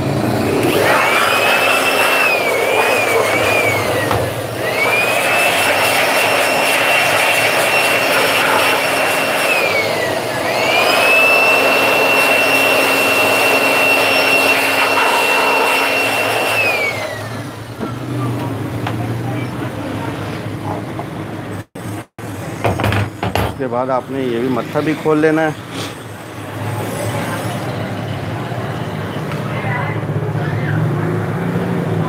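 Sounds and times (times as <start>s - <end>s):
electric air blower whining: 0.0s - 18.1s.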